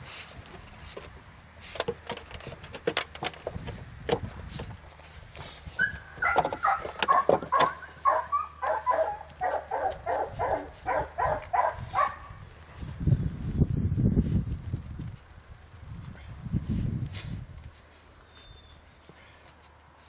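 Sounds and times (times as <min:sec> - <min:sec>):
puppy yipping barks: 0:05.8 - 0:12.3.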